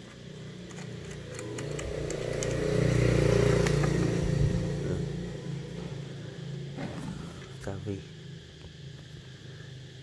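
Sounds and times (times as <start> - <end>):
engine passing by: 0.3 - 7.5.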